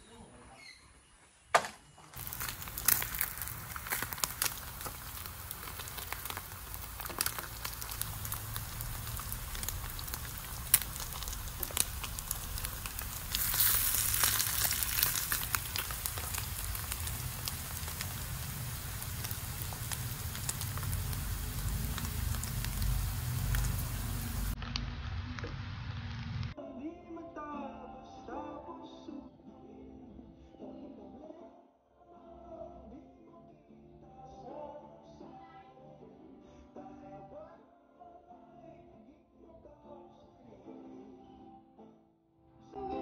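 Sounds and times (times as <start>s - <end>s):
spatula turning food in pan: 2.2s - 24.6s
meat sizzling in hot oil: 2.2s - 26.5s.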